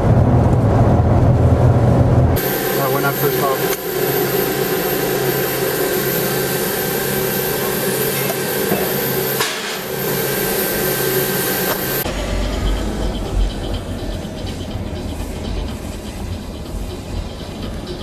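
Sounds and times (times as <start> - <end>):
low machinery rumble: 0.0 - 18.0
loud machinery hiss: 2.4 - 17.2.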